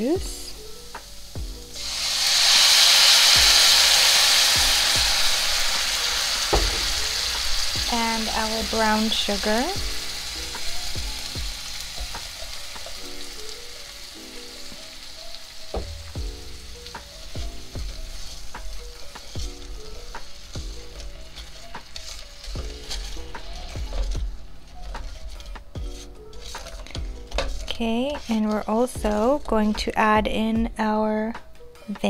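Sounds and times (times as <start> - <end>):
background music with low beat: 0.0 - 1.9, 3.3 - 32.0
liquid sizzling in a skillet: 0.0 - 29.5
spoon scraping a pan: 17.2 - 29.0.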